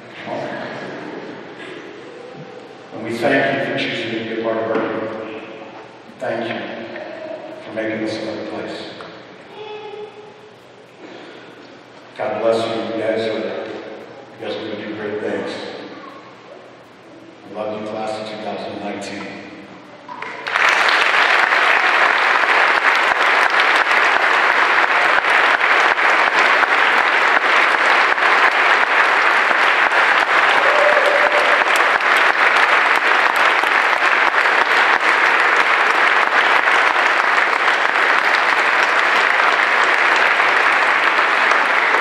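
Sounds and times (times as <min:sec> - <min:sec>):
large audience applauding: 0:20.1 - 0:42.0.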